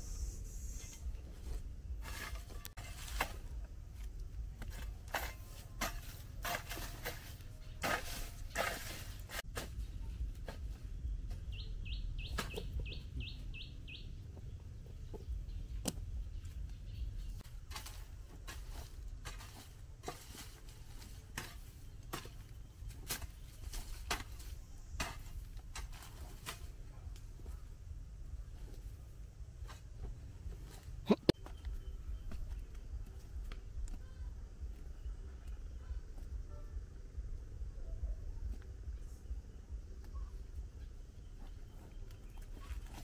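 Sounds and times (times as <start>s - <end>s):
low rumble: 9.4s - 17.4s
chickens clucking: 30.8s - 31.5s.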